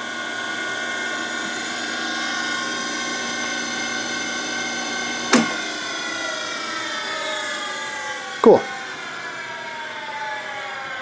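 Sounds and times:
electric motor whining: 0.0s - 10.9s
stop button click: 5.3s - 5.6s.

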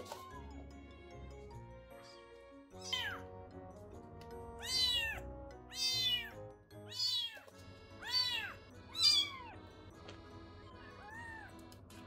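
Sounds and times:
soft background music: 0.0s - 12.0s
kittens meowing: 2.8s - 3.3s, 4.6s - 9.6s, 10.8s - 11.6s.

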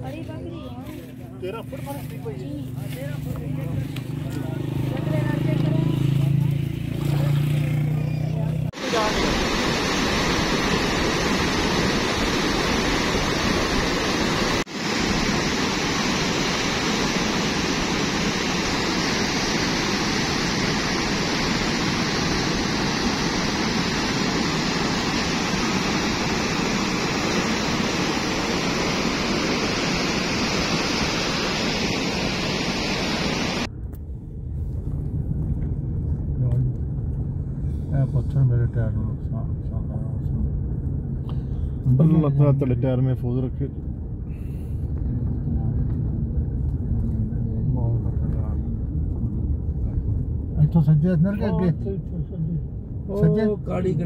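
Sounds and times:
floodwater rushing over spillway: 8.8s - 33.7s.

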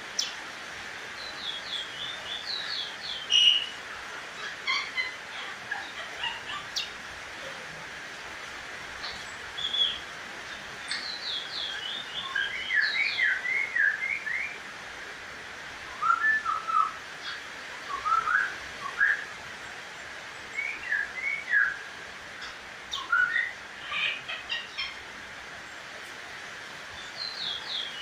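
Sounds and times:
songbird whistled singing: 1.2s - 3.8s, 9.6s - 10.0s, 10.8s - 14.6s, 15.9s - 19.3s, 20.5s - 21.8s, 22.9s - 23.6s.

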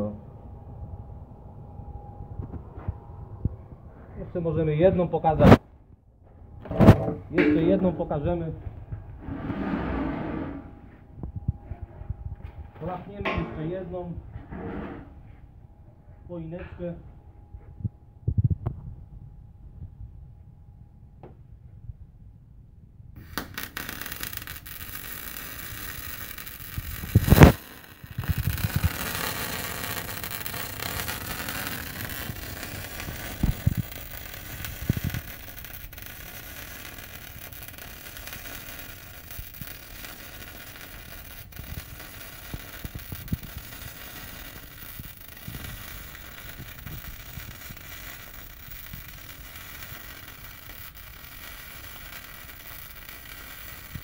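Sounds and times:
welding arc crackling and hissing: 23.2s - 54.0s.

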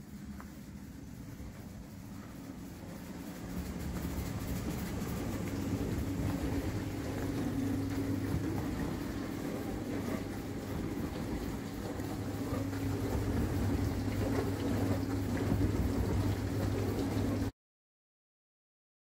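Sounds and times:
dishwasher hum: 0.0s - 17.5s
rushing wash noise: 0.0s - 17.5s.

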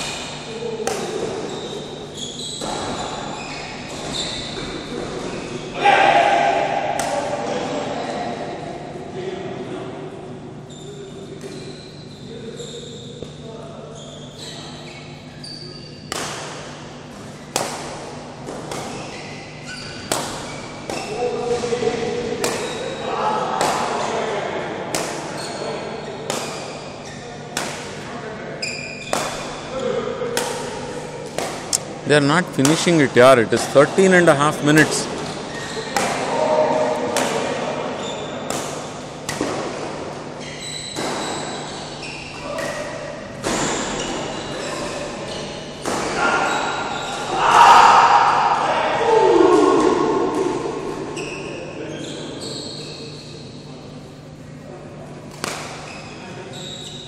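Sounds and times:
racket hitting shuttlecock: 0.0s - 1.4s, 6.2s - 7.4s, 16.1s - 21.3s, 22.3s - 23.0s, 23.6s - 24.1s, 24.9s - 25.4s, 26.3s - 26.8s, 27.5s - 28.1s, 29.0s - 29.7s, 30.3s - 31.9s, 34.8s - 40.2s, 40.8s - 41.7s, 45.8s - 47.1s, 55.3s - 55.9s
shoes squeaking on court floor: 0.0s - 5.8s, 10.5s - 16.2s, 18.4s - 23.2s, 25.2s - 27.5s, 28.6s - 30.0s, 31.7s - 39.4s, 40.1s - 47.3s, 50.8s - 53.7s, 55.6s - 57.0s
badminton racket hitting shuttlecock: 20.0s - 21.1s, 22.4s - 22.8s, 29.1s - 29.6s.

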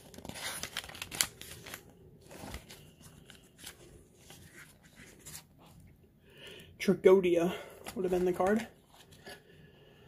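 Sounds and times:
magazine pages turning: 0.0s - 5.8s, 7.7s - 9.4s.

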